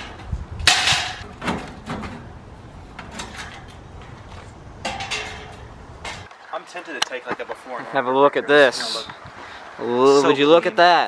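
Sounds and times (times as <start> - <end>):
sheet-metal panels rattling: 0.0 - 6.3.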